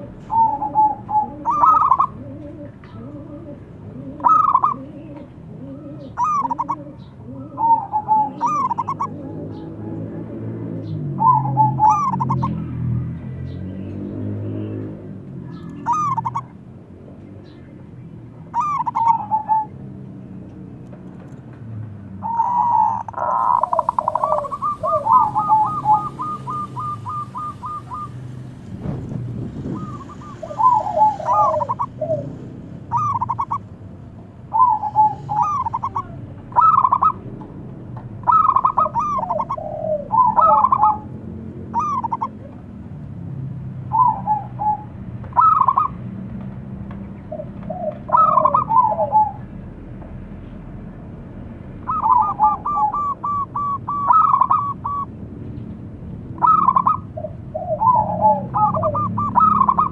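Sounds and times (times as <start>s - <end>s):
dove cooing: 0.0s - 13.0s, 14.7s - 16.6s, 18.3s - 19.9s, 22.2s - 28.6s, 29.6s - 33.8s, 34.4s - 42.8s, 43.8s - 46.0s, 47.2s - 49.7s, 51.8s - 55.2s, 56.3s - 59.9s.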